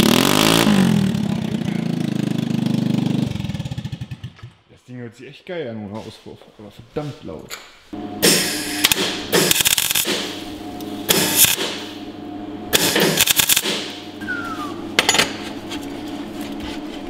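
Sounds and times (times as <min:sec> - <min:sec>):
steady low hum: 0:07.9 - 0:17.0
welder crackling: 0:08.2 - 0:12.0, 0:12.8 - 0:14.0.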